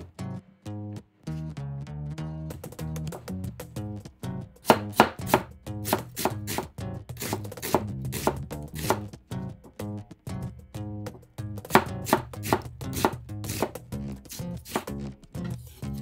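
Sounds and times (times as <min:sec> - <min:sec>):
knife chopping on cutting board: 0:04.6 - 0:09.1, 0:11.6 - 0:14.9.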